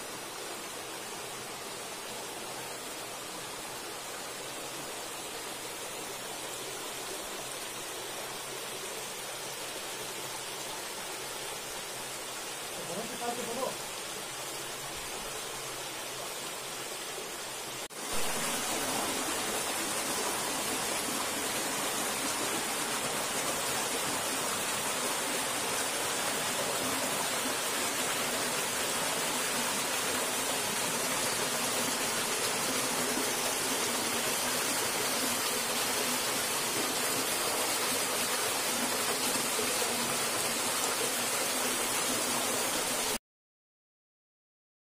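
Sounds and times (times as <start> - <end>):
water running over rocks: 0.0 - 43.2.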